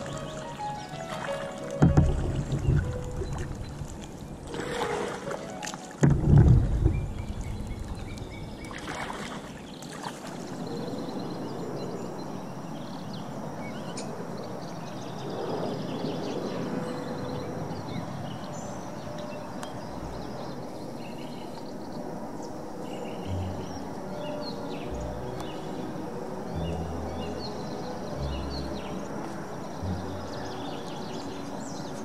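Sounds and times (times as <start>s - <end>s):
paddle splashing and dripping: 0.0s - 11.0s
water lapping against hull: 0.0s - 11.4s
loud low thump: 1.8s - 3.6s, 6.0s - 8.1s.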